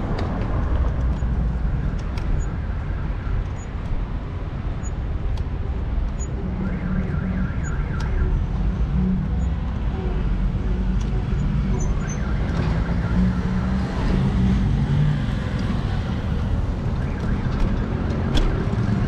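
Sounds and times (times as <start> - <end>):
wind rumble on microphone: 0.0 - 6.2
street traffic: 0.0 - 19.0.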